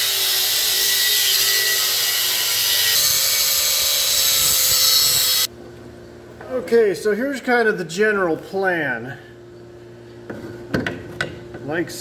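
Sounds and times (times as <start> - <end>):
power tool cutting metal: 0.0 - 5.5.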